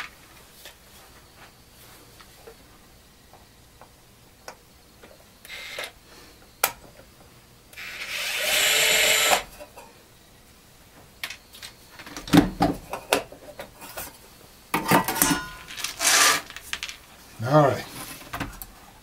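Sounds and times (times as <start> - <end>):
electric screwdriver running: 5.5 - 5.9, 7.8 - 9.5.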